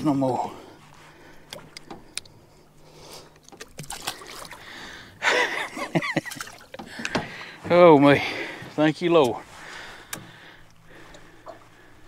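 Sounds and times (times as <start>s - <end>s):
water splashing and trickling: 0.0s - 11.8s.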